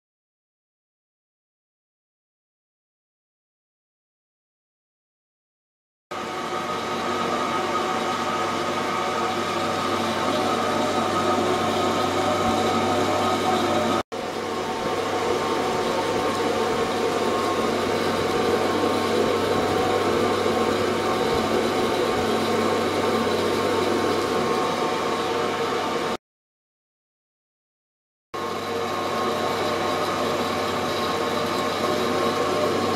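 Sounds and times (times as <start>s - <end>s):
churning hissing water: 6.2s - 26.2s, 28.4s - 32.9s
ultrasonic tank buzzing hum: 6.2s - 26.2s, 28.4s - 32.9s.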